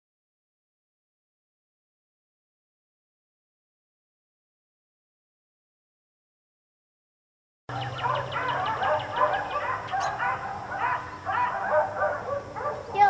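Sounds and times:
dogs barking: 7.7s - 13.0s.

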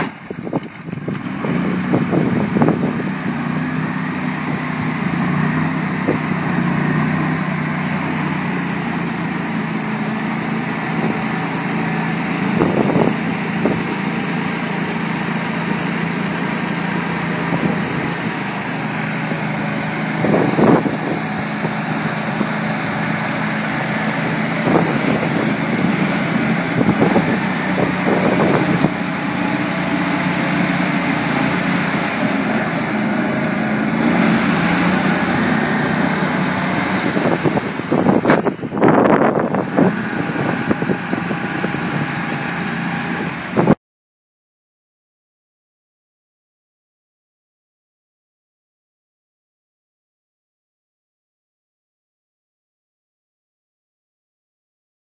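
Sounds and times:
atv engine running: 0.0s - 43.8s.

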